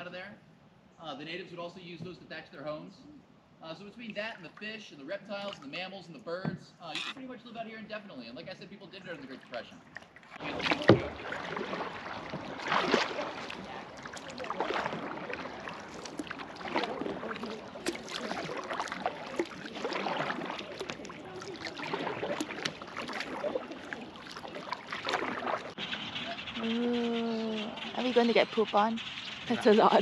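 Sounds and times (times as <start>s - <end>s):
paddle splashing in water: 9.0s - 26.7s.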